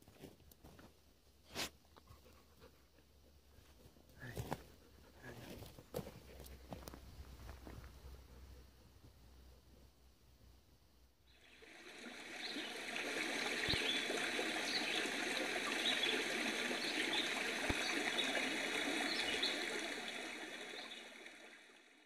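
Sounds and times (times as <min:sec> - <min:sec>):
running stream water: 0:11.3 - 0:22.0.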